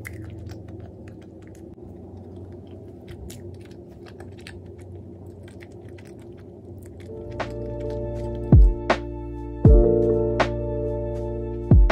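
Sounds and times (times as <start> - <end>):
person chewing pastry: 0.0 - 8.9
mouth clicks: 0.0 - 9.0
steady low hum: 0.0 - 11.9.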